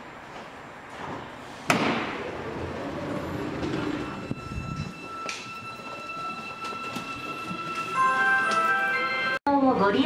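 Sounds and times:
passengers shuffling: 0.2 - 9.2
train doors sliding open: 0.8 - 8.7
steady high tone: 2.9 - 9.4.

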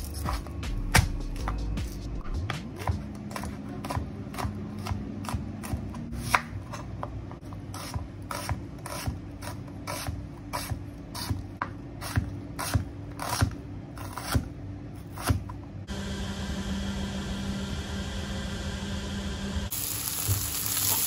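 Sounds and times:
knife chopping on cutting board: 0.0 - 1.7, 2.4 - 15.6.

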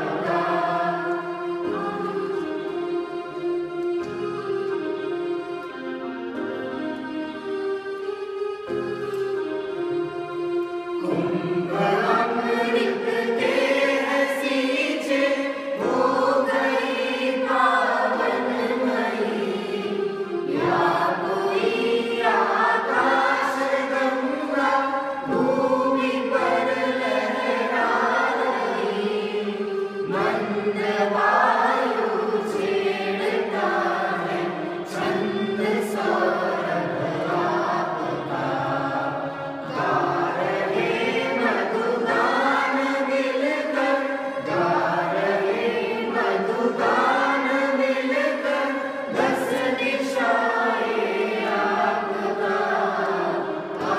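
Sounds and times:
group singing: 0.0 - 2.8, 11.0 - 53.9.

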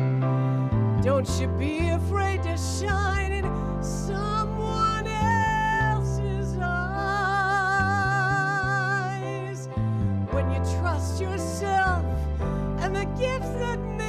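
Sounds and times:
piano and synthesizer chords: 0.0 - 14.0
woman singing: 1.0 - 14.0.

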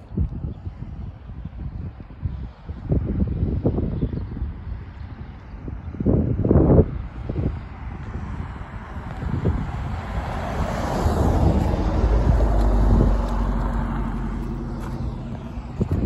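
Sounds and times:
wind buffeting microphone: 0.0 - 16.0
vehicle passing by: 6.4 - 16.0.

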